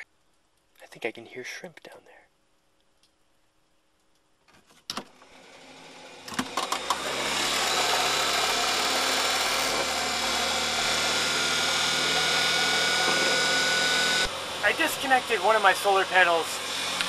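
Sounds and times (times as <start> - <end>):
electric outboard motor running: 5.2 - 17.0.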